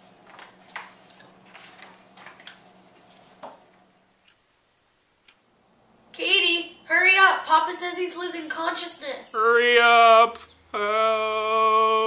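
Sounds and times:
paper pages rustling: 0.0s - 3.8s.

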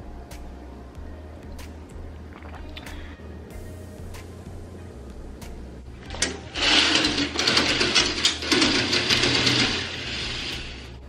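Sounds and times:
curtain runners rattling along rail: 6.0s - 11.0s.

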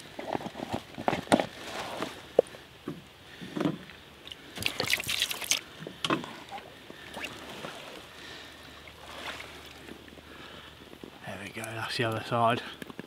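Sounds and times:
wet crinkling and rustling: 0.0s - 2.5s, 4.2s - 8.1s.

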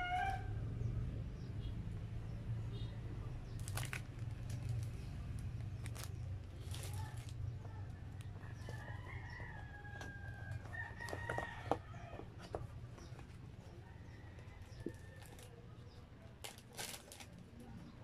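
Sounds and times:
faint rooster crowing: 0.0s - 0.9s, 8.3s - 12.7s, 13.6s - 15.6s
plastic bag crinkling: 3.6s - 7.4s, 14.6s - 15.5s, 16.3s - 17.6s.

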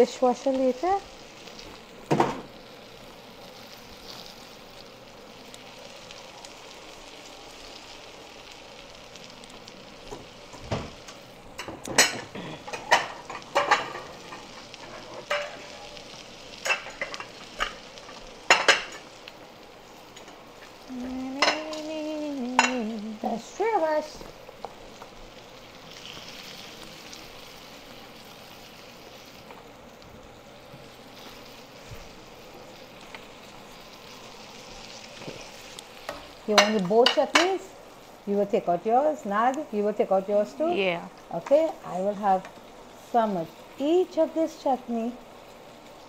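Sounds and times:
fritters sizzling in hot oil: 0.0s - 46.0s
metal utensils clinking on pan: 11.6s - 15.7s, 16.6s - 17.8s, 36.1s - 37.6s.

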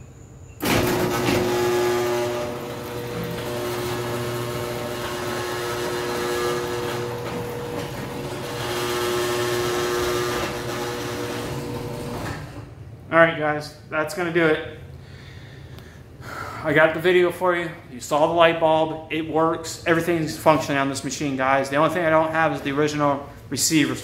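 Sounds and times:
garage door opener humming: 0.6s - 13.0s.

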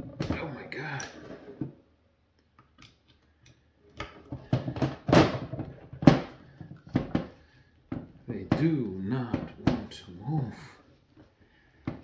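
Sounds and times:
hand tools knocking and scraping plastic: 3.9s - 10.2s, 11.2s - 12.0s.

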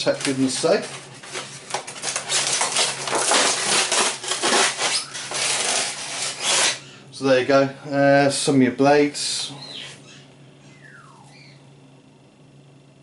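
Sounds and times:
polystyrene rubbing and scraping: 0.0s - 6.8s.

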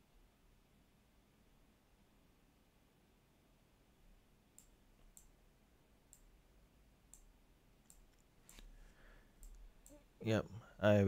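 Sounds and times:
computer mouse clicks: 4.5s - 5.4s, 7.1s - 8.7s, 9.4s - 10.0s.

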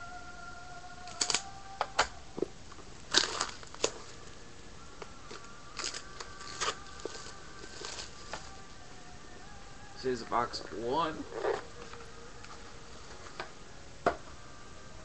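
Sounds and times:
plastic wrapping crinkling and tearing: 1.1s - 2.1s, 3.0s - 4.3s, 5.2s - 8.7s.

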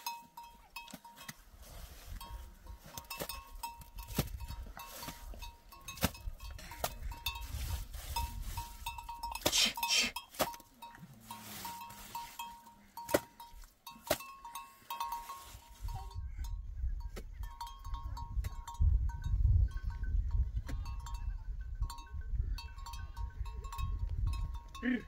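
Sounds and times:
animal bells clinking: 0.0s - 25.0s
wind rumbling on microphone: 3.8s - 9.0s, 15.6s - 24.8s.

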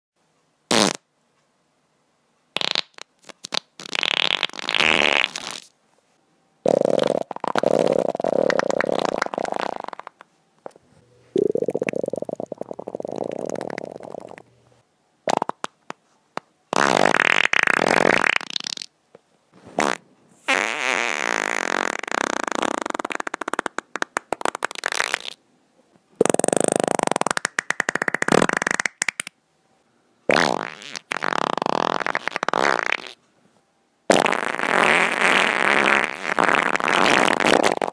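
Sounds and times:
wet farts: 0.7s - 1.0s, 2.6s - 5.7s, 6.7s - 10.2s, 11.4s - 14.4s, 15.3s - 15.8s, 16.7s - 18.9s, 19.8s - 25.4s, 26.2s - 29.3s, 30.3s - 33.2s, 34.1s - 37.9s.

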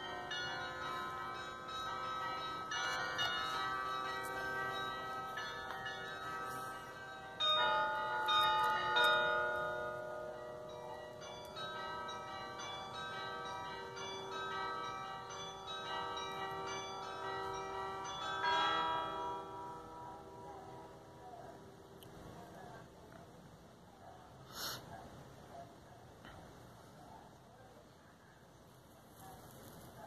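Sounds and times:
carillon bells playing a tune: 0.0s - 19.4s.

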